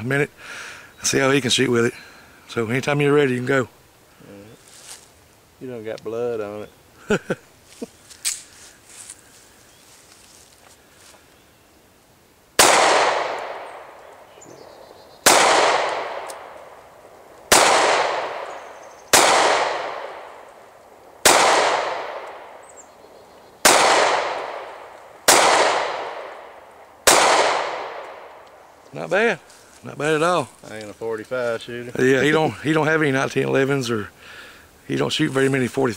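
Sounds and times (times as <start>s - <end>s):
pistol shots echoing: 12.6s - 22.8s, 23.6s - 28.5s.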